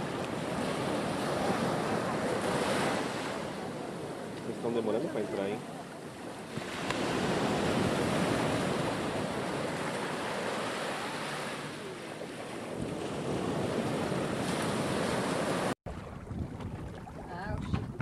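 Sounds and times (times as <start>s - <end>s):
waves breaking around boulders: 0.0s - 18.0s
wind buffeting microphone: 6.0s - 10.7s, 12.4s - 18.0s.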